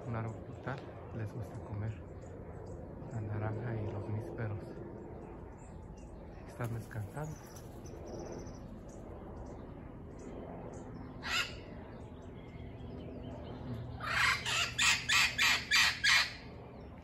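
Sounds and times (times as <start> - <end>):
parrots squawking: 11.2 - 11.8, 13.9 - 16.5.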